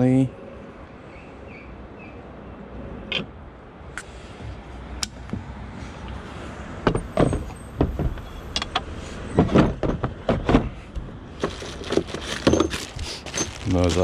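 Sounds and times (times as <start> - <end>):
plastic bag crinkling: 11.4 - 14.0.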